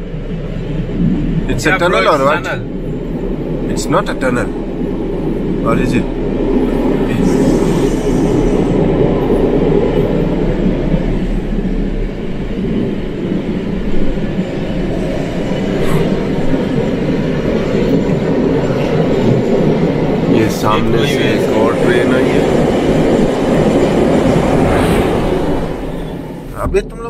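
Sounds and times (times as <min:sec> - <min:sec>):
train wheels rumbling on rail: 0:00.0 - 0:27.0.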